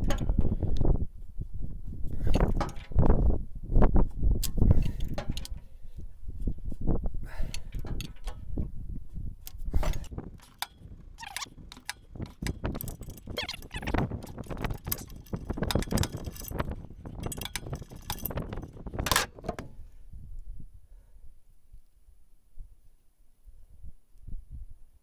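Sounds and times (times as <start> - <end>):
wrench clinking on metal: 2.4 - 3.0, 9.8 - 19.7.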